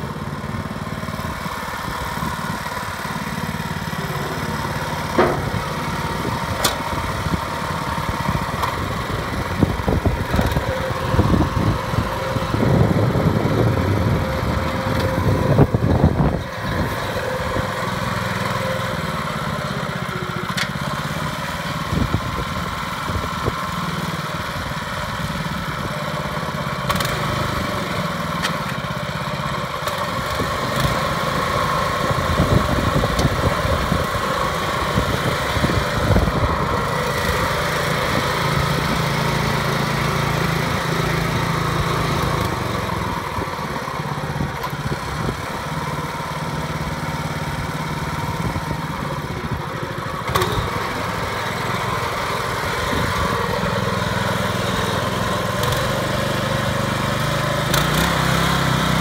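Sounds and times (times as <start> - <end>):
small petrol engine running: 0.0 - 59.0.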